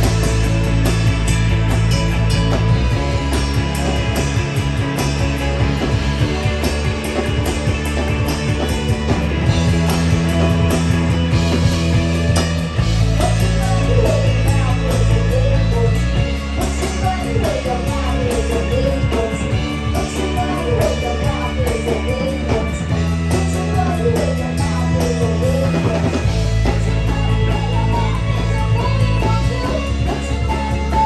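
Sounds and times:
rock band playing: 0.0 - 31.0
woman singing: 13.2 - 31.0.

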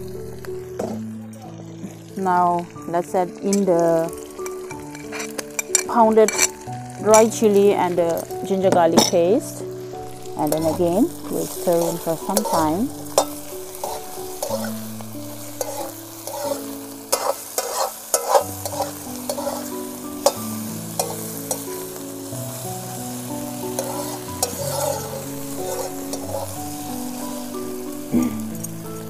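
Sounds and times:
oil sizzling: 0.0 - 29.0
soft background music: 0.0 - 29.0
spatula scraping wok: 3.4 - 28.8
spatula clinking on pan: 4.4 - 7.3, 9.0 - 9.3, 15.6 - 21.7, 23.7 - 26.5.

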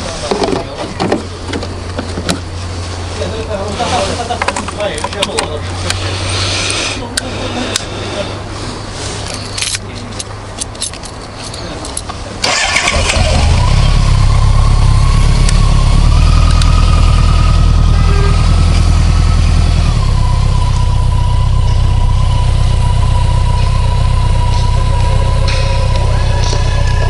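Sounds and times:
steady whine: 12.6 - 27.0
motorcycle engine idling fast: 13.4 - 27.0.

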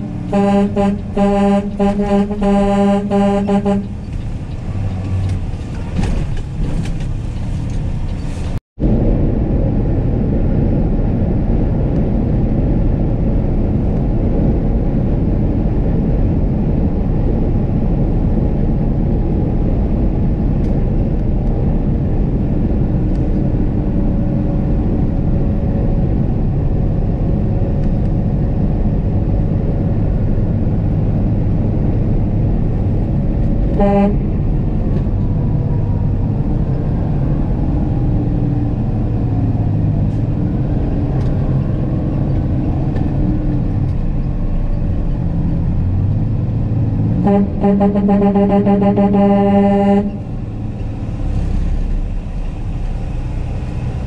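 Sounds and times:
air horn blast: 0.0 - 4.0, 33.7 - 34.5, 47.2 - 50.4
diesel truck engine drone: 0.0 - 54.0
road noise: 0.0 - 54.0.

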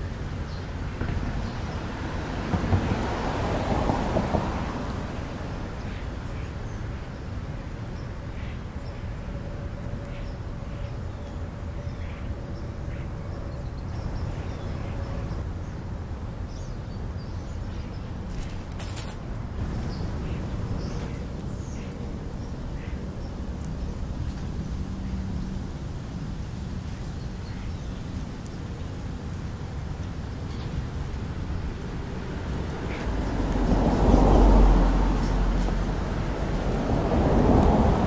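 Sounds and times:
road traffic rumble: 0.0 - 38.0
vehicle passing: 0.8 - 7.2, 17.8 - 38.0.

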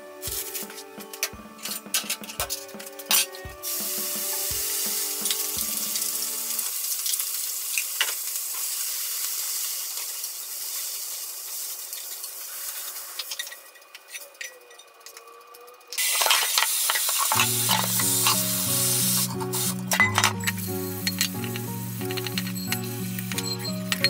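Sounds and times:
sauce sizzling in hot pan: 3.6 - 13.4, 16.0 - 23.7.

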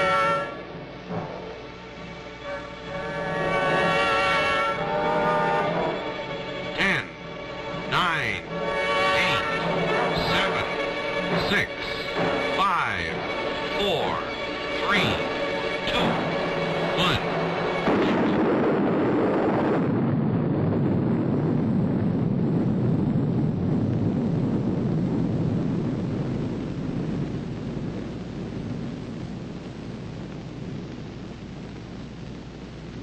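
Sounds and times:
deep rumbling explosion roar: 0.0 - 33.0.

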